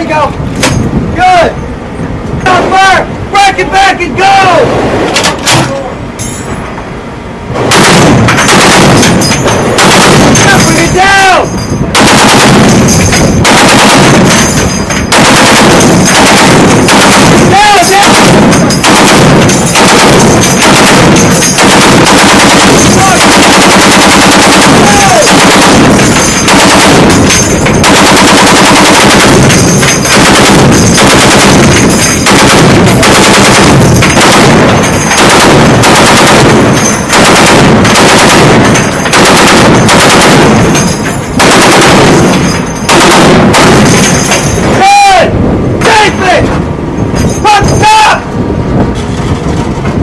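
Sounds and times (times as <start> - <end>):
heavy machine gun bursts: 7.6 - 44.8.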